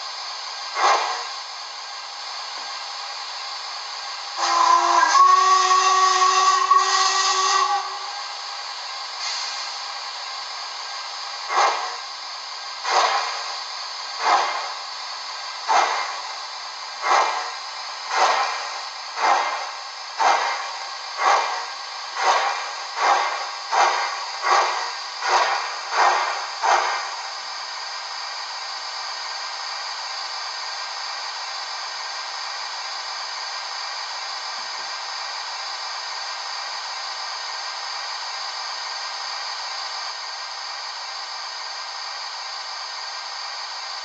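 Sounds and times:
steady steam hiss: 0.0s - 44.0s
steam locomotive whistle: 4.4s - 9.6s.

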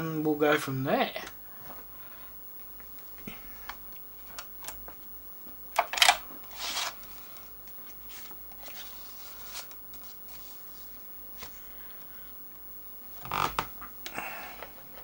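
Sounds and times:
scraping rustling noises: 6.4s - 11.6s.

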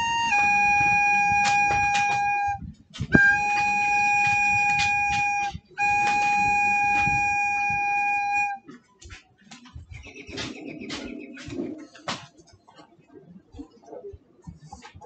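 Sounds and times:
recorder long note: 0.0s - 8.6s
rustling and knocks: 0.9s - 7.9s.

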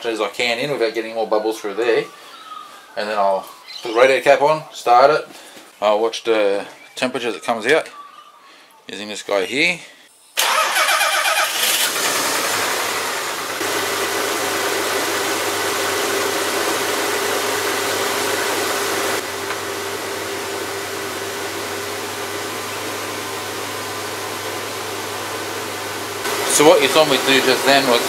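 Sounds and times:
starter motor cranking: 10.4s - 13.0s
car engine idling: 11.5s - 28.0s.

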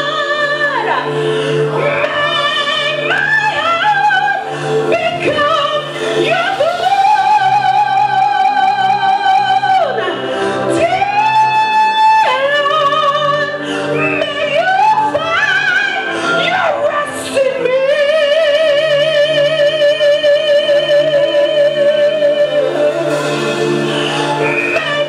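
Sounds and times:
sustained musical accompaniment: 0.0s - 25.0s
woman singing into microphone: 0.0s - 25.0s.

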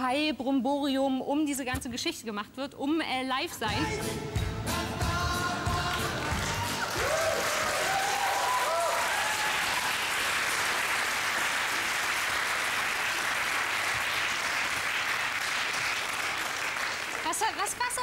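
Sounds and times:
audience applauding: 5.7s - 18.0s
audience cheering: 6.1s - 13.4s.

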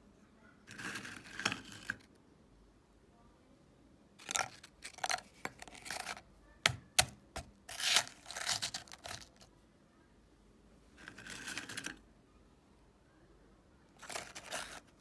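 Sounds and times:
biscuits crunching in metal hopper: 7.7s - 9.4s.

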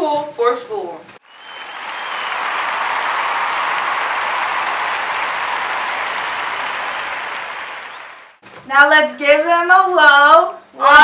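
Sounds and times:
crowd applauding: 1.2s - 8.4s.

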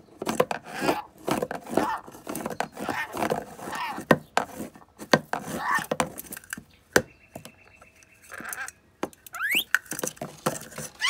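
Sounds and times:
parrot chattering chirps: 8.1s - 9.7s
rising squeak: 9.3s - 9.7s.

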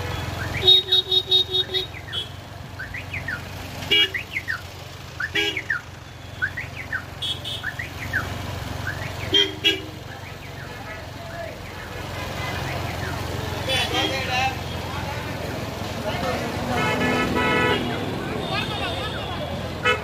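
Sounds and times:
vehicle horns beeping: 0.0s - 4.6s, 5.2s - 8.3s, 8.9s - 10.9s, 11.6s - 15.1s, 16.4s - 20.0s
car alarm chirping: 0.0s - 13.4s.

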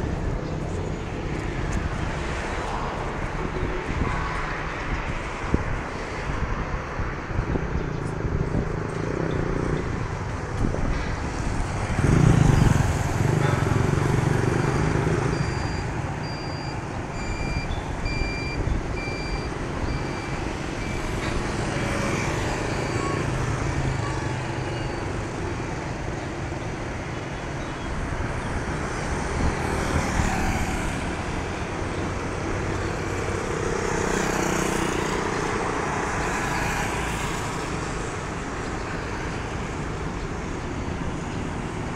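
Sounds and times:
vehicle engines running: 0.0s - 41.9s
short high beeps: 15.3s - 21.1s.

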